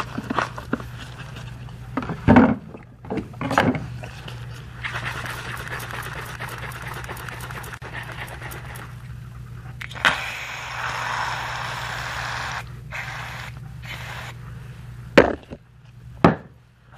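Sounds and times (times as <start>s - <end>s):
aerosol foam can hissing: 10.0s - 14.4s.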